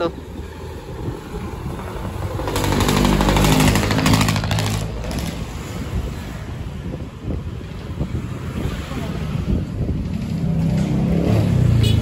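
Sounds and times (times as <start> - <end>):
motorcycle engine passing by: 1.8 - 5.6.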